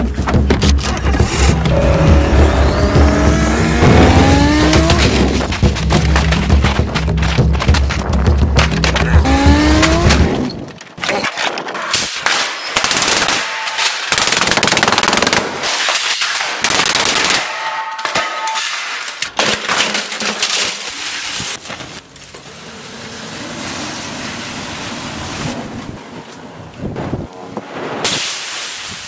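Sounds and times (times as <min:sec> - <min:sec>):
plastic being smashed: 0:04.8 - 0:12.6, 0:18.0 - 0:22.0.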